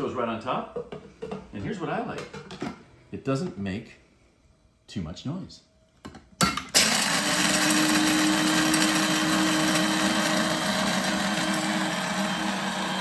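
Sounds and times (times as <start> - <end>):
coffee grinder motor humming: 6.8 - 13.0.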